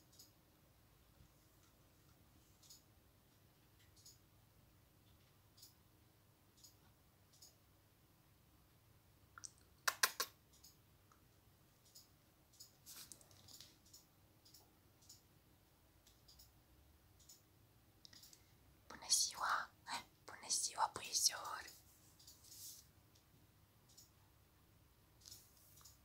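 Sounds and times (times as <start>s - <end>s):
faint clicks and taps: 1.1s - 4.2s, 5.0s - 5.8s, 8.7s - 15.3s.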